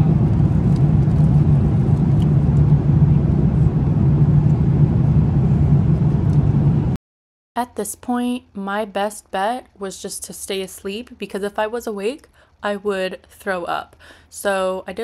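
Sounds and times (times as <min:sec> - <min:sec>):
jet engines humming: 0:00.0 - 0:07.0
rushing air: 0:00.0 - 0:07.0.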